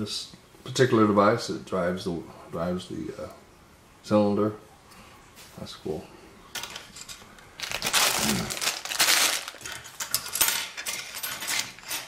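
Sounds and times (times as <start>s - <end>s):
plastic bag crinkling: 6.6s - 11.9s.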